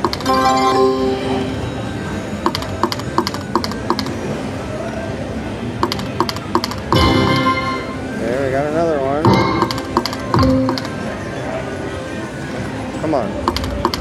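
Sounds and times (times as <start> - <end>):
background noise: 0.0 - 14.0
slot machine chime: 0.2 - 2.0, 7.0 - 8.2, 9.3 - 10.8.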